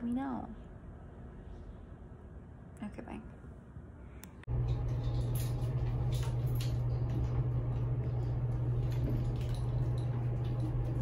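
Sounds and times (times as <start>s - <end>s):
elevator hum: 4.5s - 11.0s.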